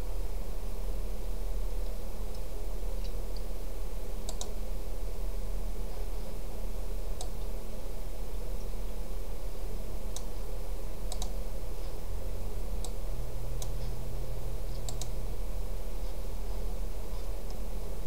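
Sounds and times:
steady low hum: 0.0s - 18.0s
computer mouse clicking: 4.2s - 4.6s, 7.2s - 7.5s, 10.1s - 10.4s, 11.1s - 11.4s, 12.8s - 13.0s, 14.7s - 15.2s.

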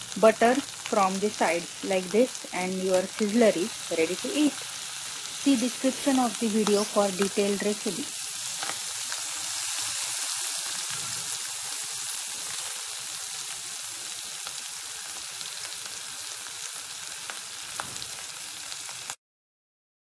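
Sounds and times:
butter sizzling on a hot plate: 0.0s - 19.2s
small crackles and pops: 17.2s - 18.2s.

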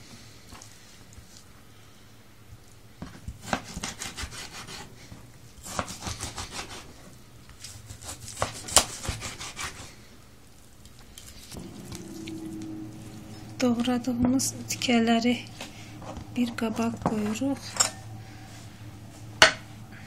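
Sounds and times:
knife slicing fish: 7.6s - 9.9s.

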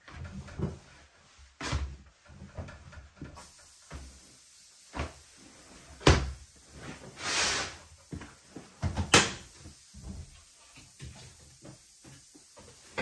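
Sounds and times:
laundry rustling in drum: 0.0s - 3.5s.

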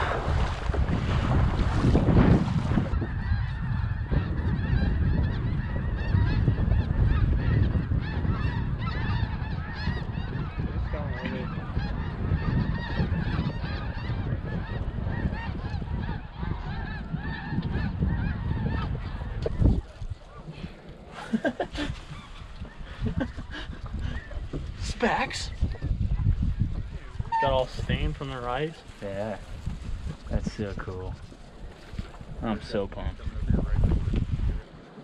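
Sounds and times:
wind rumbling on microphone: 0.0s - 35.0s
geese honking: 2.9s - 24.4s.

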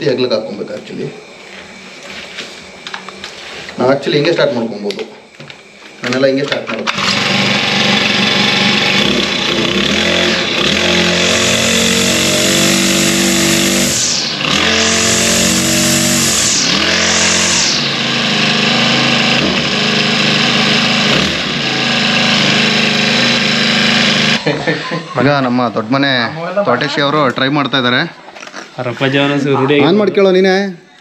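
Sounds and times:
brush cutter engine revving: 6.9s - 24.4s.

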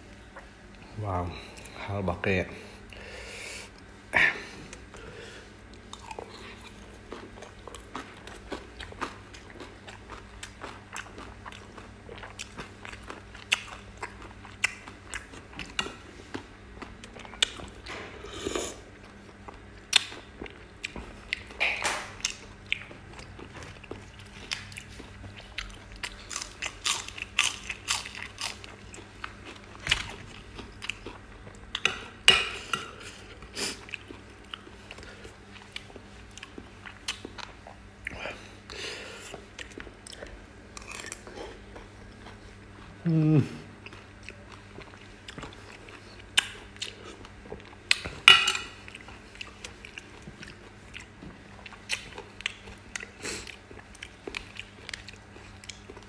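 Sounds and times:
crisp chewing crunches: 22.2s - 31.4s.

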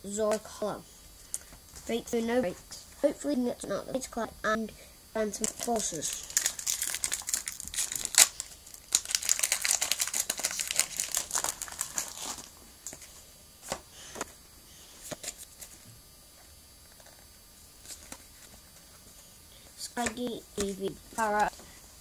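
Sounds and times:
foil wrapper crinkling and tearing: 5.4s - 13.0s.

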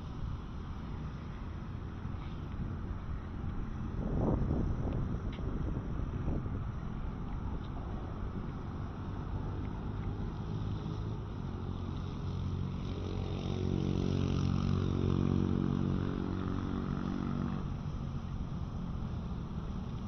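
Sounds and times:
steady low rumble: 0.0s - 14.9s
engine passing by: 0.0s - 20.0s.

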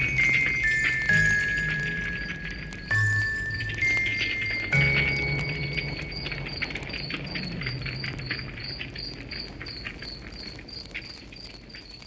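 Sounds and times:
low ringing tone: 0.0s - 8.6s
campfire crackling: 0.0s - 12.0s
cricket chirping: 0.0s - 12.0s.

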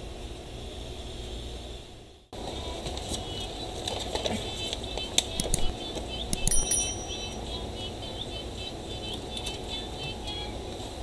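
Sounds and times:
high bell ding: 6.4s - 7.4s.

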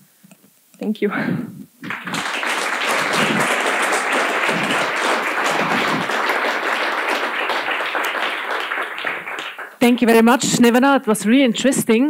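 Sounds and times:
audience applauding: 1.8s - 10.1s.

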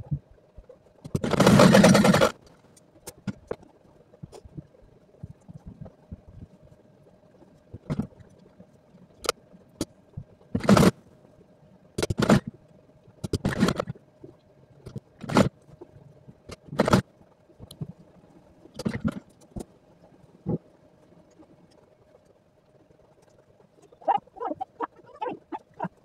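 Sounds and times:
sewing machine stitching: 1.1s - 2.4s, 10.6s - 11.0s.

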